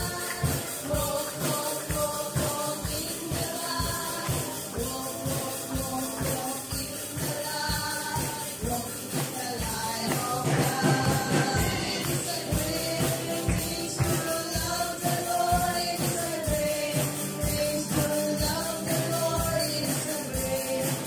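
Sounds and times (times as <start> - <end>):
hands clapping in time: 0.0 - 7.4, 9.1 - 14.5
backing music: 0.0 - 21.0
women singing together: 0.0 - 21.0.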